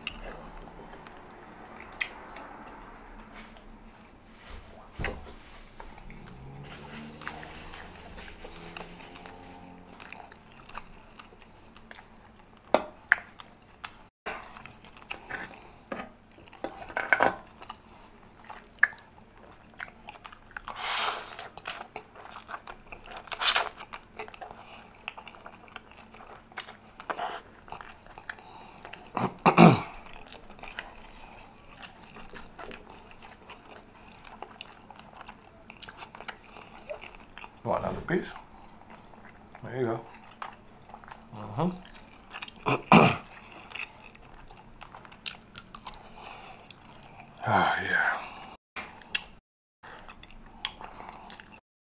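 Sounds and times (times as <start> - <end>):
slurping noodles: 5.9 - 11.6, 20.7 - 21.8, 23.3 - 23.8
wet chewing with lip smacks: 5.9 - 15.7, 17.5 - 29.2, 30.0 - 37.6, 38.4 - 42.6, 43.3 - 47.4, 49.0 - 51.6.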